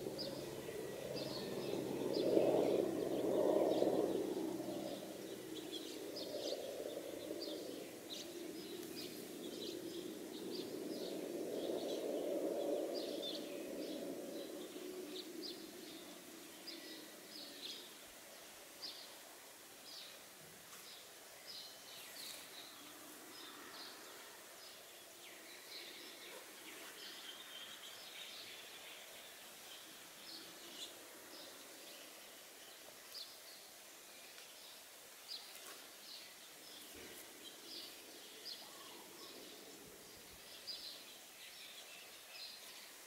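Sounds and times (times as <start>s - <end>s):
low steady background hiss: 0.0s - 43.0s
small birds chirping: 19.9s - 43.0s.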